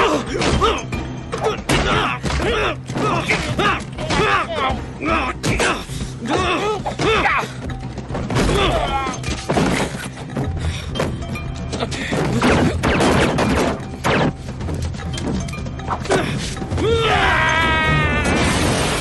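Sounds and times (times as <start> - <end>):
tense background music: 0.0 - 19.0
punches thuds and crashes: 12.1 - 14.4.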